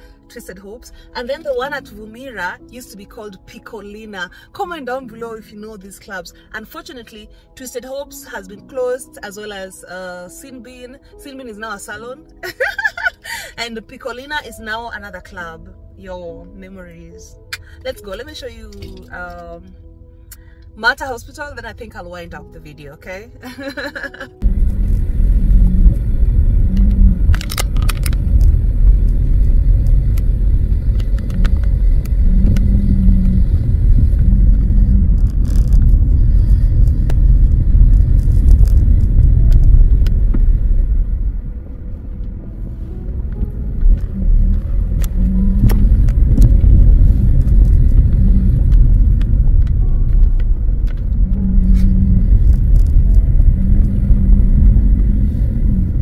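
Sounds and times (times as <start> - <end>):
road and wind noise: 0.0 - 5.0, 11.6 - 56.0
vehicle rumble: 12.2 - 56.0.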